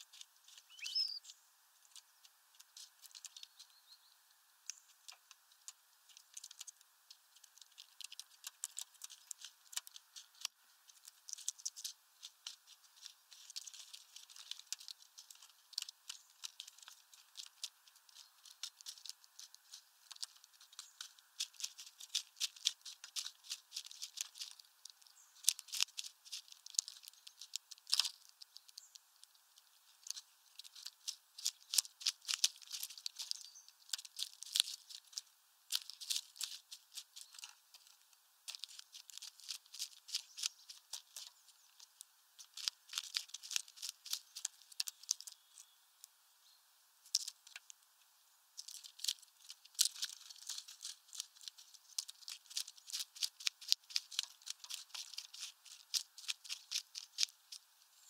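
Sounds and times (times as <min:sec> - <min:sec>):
seed husks rustling: 0:00.0 - 0:46.2, 0:47.0 - 0:58.0
beak taps and clicks: 0:00.1 - 0:03.7, 0:04.6 - 0:45.7, 0:47.1 - 0:47.8.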